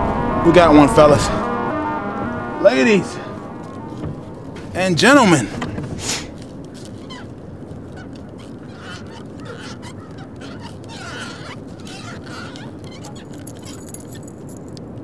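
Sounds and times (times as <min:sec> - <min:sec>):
water noise: 0:00.0 - 0:15.0
wind: 0:00.0 - 0:15.0
waterfowl calls: 0:06.7 - 0:13.4.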